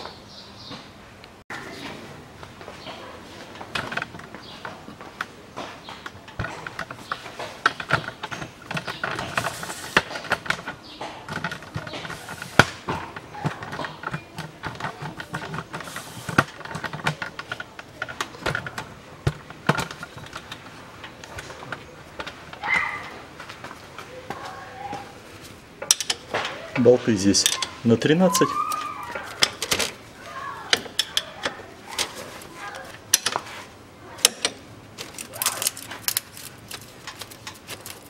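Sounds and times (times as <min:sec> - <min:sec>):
wrench clicking and clanking on bolts: 0:25.8 - 0:26.5, 0:27.4 - 0:30.0, 0:30.7 - 0:33.4, 0:34.2 - 0:38.0.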